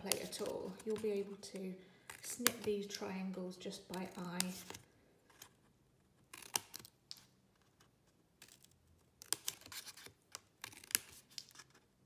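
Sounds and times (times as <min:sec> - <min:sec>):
scissors snipping paper: 0:00.0 - 0:03.0, 0:03.7 - 0:04.8, 0:08.4 - 0:11.7.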